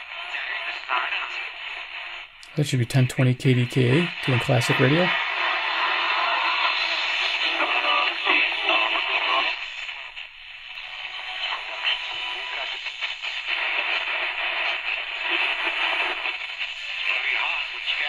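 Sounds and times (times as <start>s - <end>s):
am radio station audio: 0.0s - 18.0s
radio static hiss: 0.0s - 18.0s.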